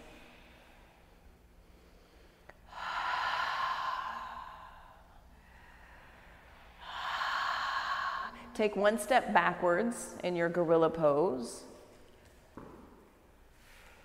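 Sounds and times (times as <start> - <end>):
person breathing close to microphone: 0.0 - 8.6.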